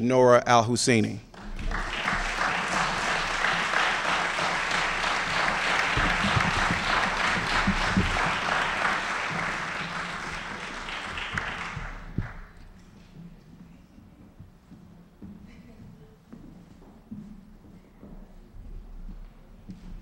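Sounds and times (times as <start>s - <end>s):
audience applauding: 1.3s - 12.8s.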